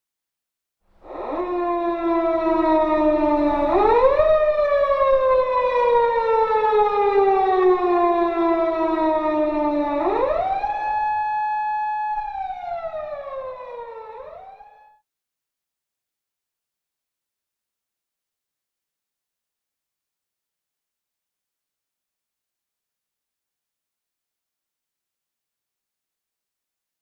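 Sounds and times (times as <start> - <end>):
police car siren wailing: 1.0 - 15.0.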